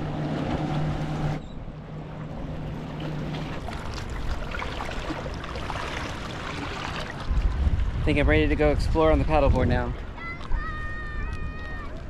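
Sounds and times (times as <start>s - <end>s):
water lapping on rocks: 2.7s - 8.0s.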